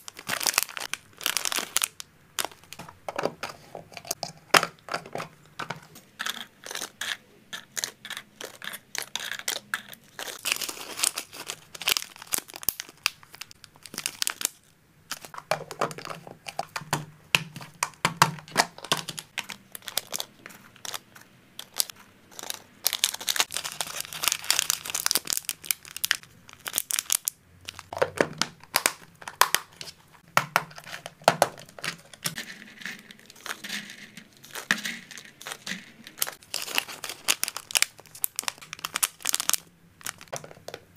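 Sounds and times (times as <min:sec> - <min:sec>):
plastic zip bags crinkling: 0:00.0 - 0:04.2, 0:08.4 - 0:16.9, 0:17.5 - 0:21.0, 0:21.6 - 0:40.8
plastic containers clicking: 0:02.4 - 0:06.8, 0:15.1 - 0:21.0, 0:27.7 - 0:40.9
spoon scraping through dry snacks: 0:06.2 - 0:12.7, 0:18.8 - 0:27.9, 0:30.7 - 0:40.4.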